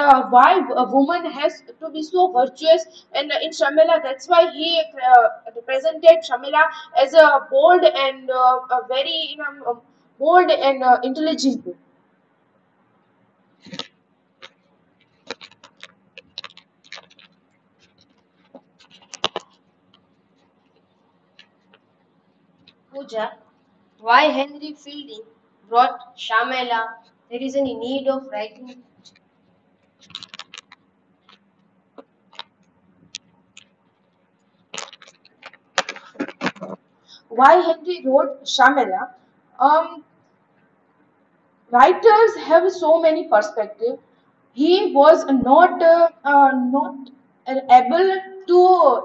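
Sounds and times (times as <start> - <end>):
faint clicks and taps: 13.6 - 22.9, 28.6 - 36.8.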